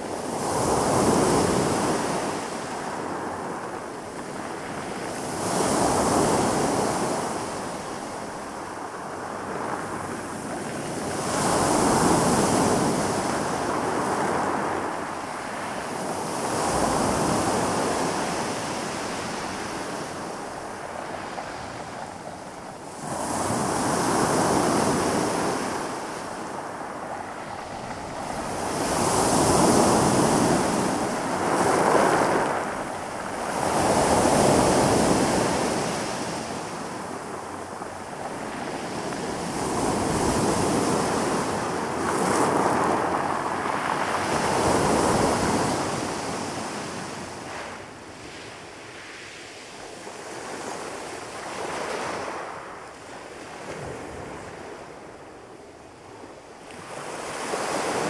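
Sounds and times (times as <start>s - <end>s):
waves washing up pebble beach: 4.2s - 49.2s.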